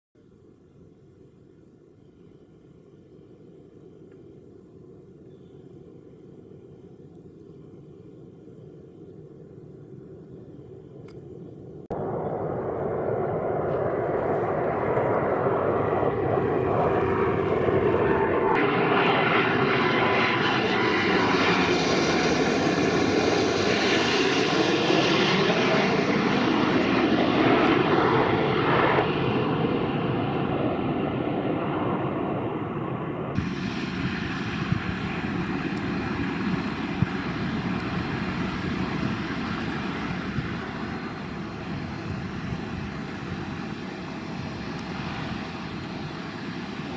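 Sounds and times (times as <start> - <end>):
jet airliner passing overhead: 4.4 - 46.9.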